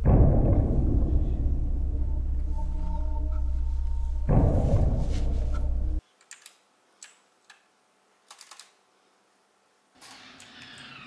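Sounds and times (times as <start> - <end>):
loud low drone: 0.0 - 6.0
faint hum with sliding tones: 0.4 - 6.1
keyboard key presses: 8.3 - 8.8.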